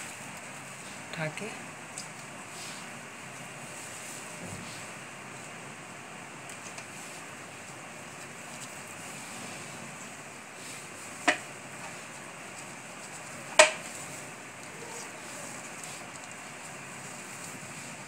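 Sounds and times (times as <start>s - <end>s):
dough taps on plastic tray: 13.6s - 13.8s.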